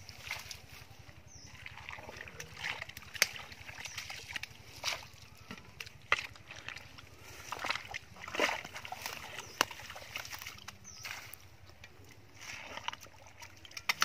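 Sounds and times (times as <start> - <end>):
spade chopping wet soil: 2.4 - 6.3, 13.8 - 14.0.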